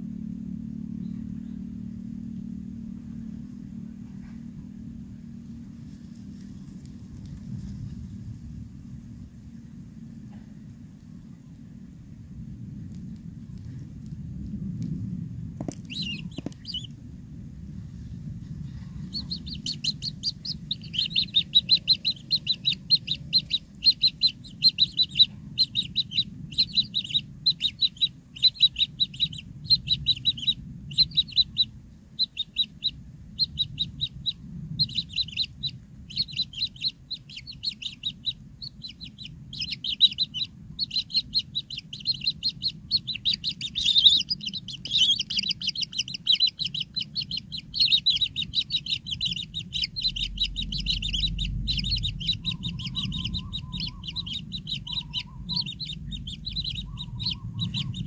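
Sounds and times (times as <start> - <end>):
low background rumble: 0.0 - 58.0
nestlings high chirps: 15.6 - 16.9, 18.0 - 58.0.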